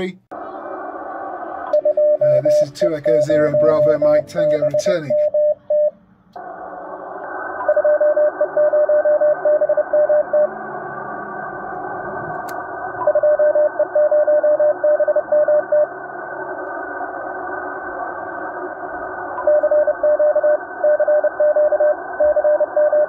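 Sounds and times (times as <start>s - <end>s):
radio static hiss: 0.0s - 5.5s, 6.4s - 23.0s
morse code beeps: 1.8s - 5.9s, 7.6s - 10.5s, 19.4s - 23.0s.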